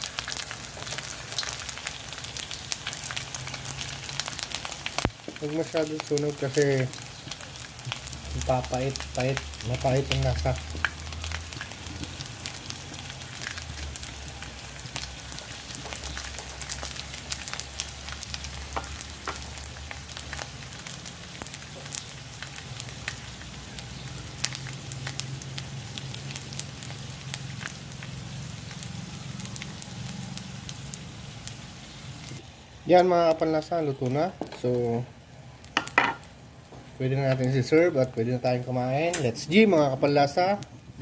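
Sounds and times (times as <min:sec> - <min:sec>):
oil crackling pops: 0:00.0 - 0:23.3, 0:39.1 - 0:39.4
fish sizzling in hot oil: 0:00.0 - 0:41.0.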